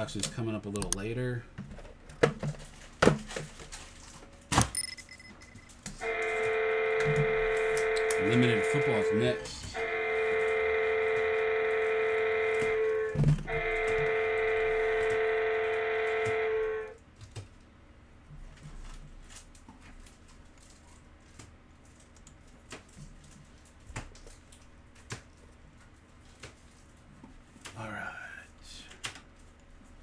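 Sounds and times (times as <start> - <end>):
loud electronic tone: 6.0 - 17.0.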